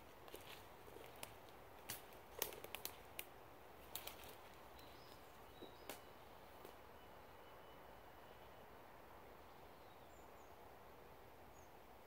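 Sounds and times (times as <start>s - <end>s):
sharp crackles and ticks: 1.9s - 3.3s.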